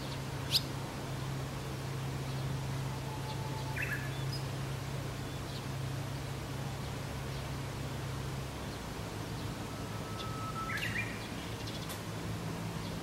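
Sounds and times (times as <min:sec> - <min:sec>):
bird singing: 0:00.0 - 0:00.7, 0:02.2 - 0:05.7, 0:08.7 - 0:12.0
steady low hum: 0:00.0 - 0:13.0
sharp high bird chirp: 0:10.0 - 0:11.6.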